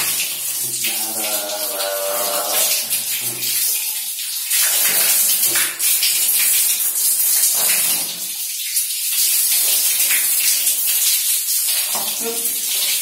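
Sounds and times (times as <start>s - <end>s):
tap water running and splashing: 0.0s - 13.0s
drawn-out vocal sound: 0.8s - 2.9s.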